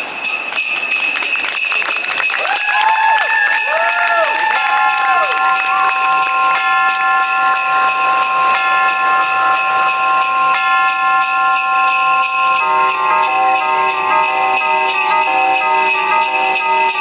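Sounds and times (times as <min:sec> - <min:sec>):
jingle bells shaking: 0:00.0 - 0:17.0
recorded christmas music: 0:00.0 - 0:17.0.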